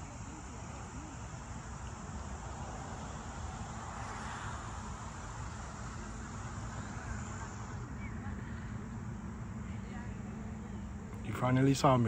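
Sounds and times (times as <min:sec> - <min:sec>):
low fluctuating outdoor rumble: 0:00.0 - 0:12.0.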